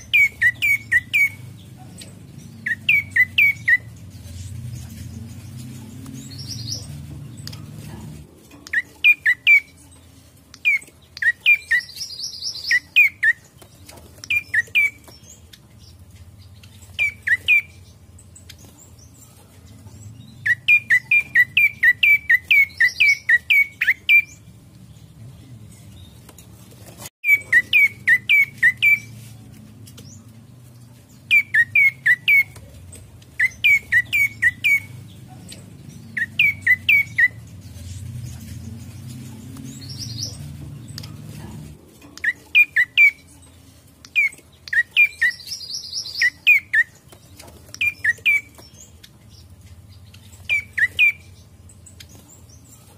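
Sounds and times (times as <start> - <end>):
buzzy bird trill: 0.0 - 7.6
bird chirping: 0.0 - 52.9.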